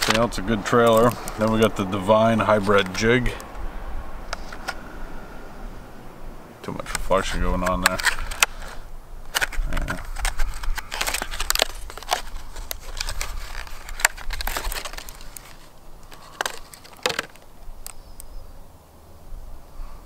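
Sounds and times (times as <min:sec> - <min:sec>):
plastic blister pack crackling: 0:00.0 - 0:01.8, 0:06.6 - 0:18.3.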